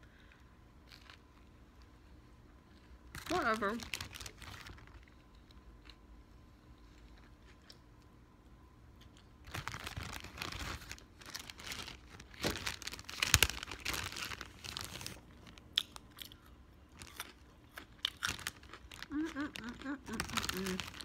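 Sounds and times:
crinkly packaging crumpled: 0:00.8 - 0:01.6, 0:02.8 - 0:05.3, 0:09.4 - 0:16.4, 0:17.0 - 0:21.0.

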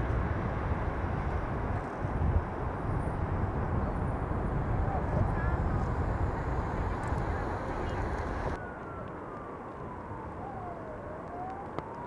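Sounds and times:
low rumbling noise: 0:00.0 - 0:09.6
outdoor hum: 0:00.0 - 0:12.0
emergency vehicle siren wailing: 0:03.8 - 0:12.0.

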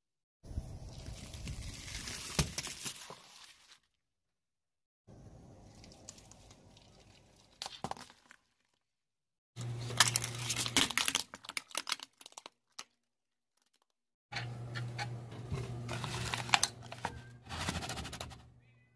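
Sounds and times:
tyre crushing plastic toys: 0:09.7 - 0:13.0.

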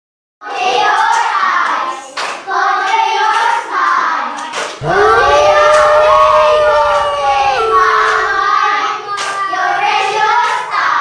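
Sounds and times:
hand claps: 0:02.2 - 0:03.5
children singing: 0:04.8 - 0:09.0.

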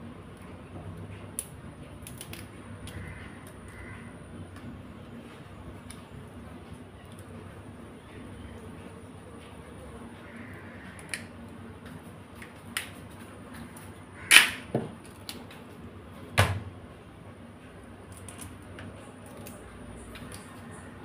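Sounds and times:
crab shells cracking: 0:00.3 - 0:04.7, 0:10.3 - 0:11.5, 0:12.3 - 0:15.6, 0:17.9 - 0:20.8.

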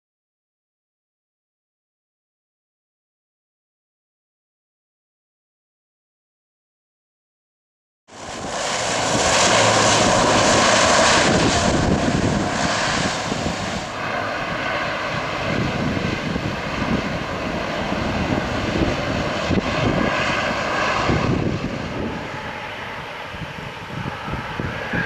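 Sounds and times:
turboprop engines and propellers: 0:08.1 - 0:25.0.

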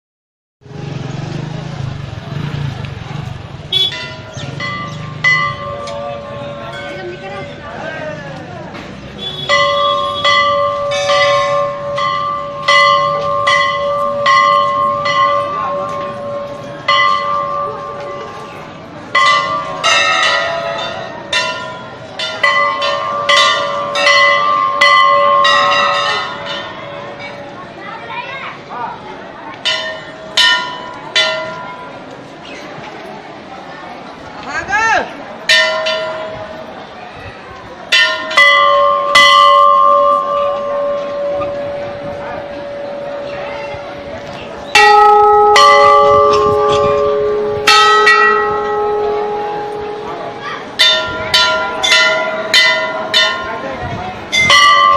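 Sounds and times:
brass bells ringing: 0:03.7 - 0:08.0, 0:09.2 - 0:27.4, 0:29.6 - 0:32.0, 0:35.5 - 0:36.6, 0:37.9 - 0:54.9.

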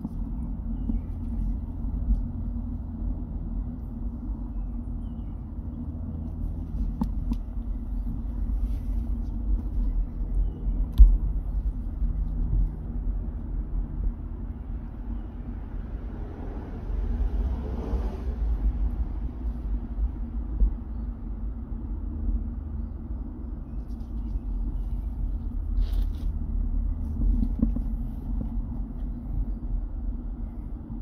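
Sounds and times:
vehicle passing on road: 0:00.0 - 0:23.3
wind rumble on microphone: 0:00.0 - 0:31.0.

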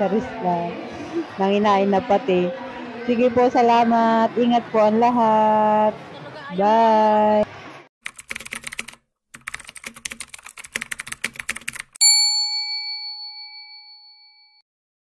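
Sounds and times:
bell ding: 0:12.0 - 0:14.6.

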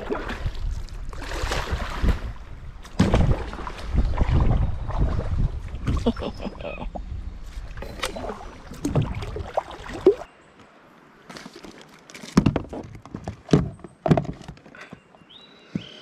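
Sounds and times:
wind rumble on microphone: 0:00.0 - 0:09.5
knocks and clatter on kayak: 0:12.2 - 0:14.8.

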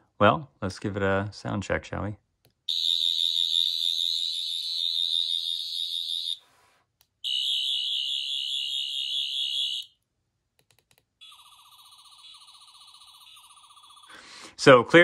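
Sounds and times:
high electronic warbling whir: 0:11.2 - 0:14.2.

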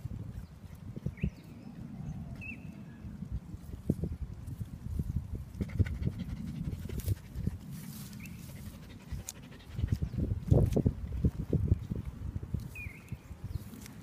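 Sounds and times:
dog panting: 0:05.6 - 0:10.4.

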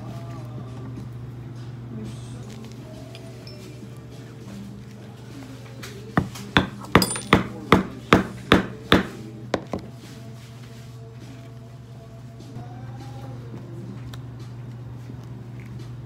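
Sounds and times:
mallet tapping metal punch: 0:06.6 - 0:09.1.

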